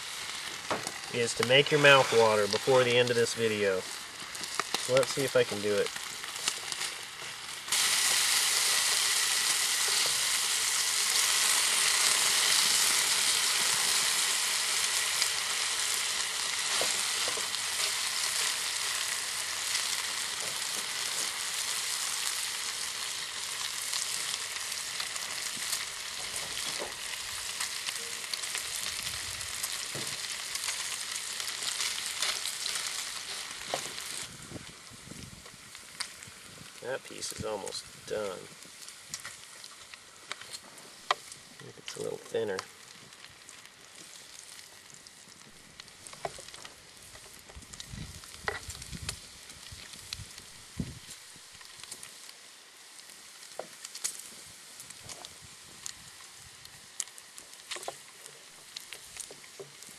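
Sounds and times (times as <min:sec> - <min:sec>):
bacon sizzling in a skillet: 0:00.0 - 0:59.9.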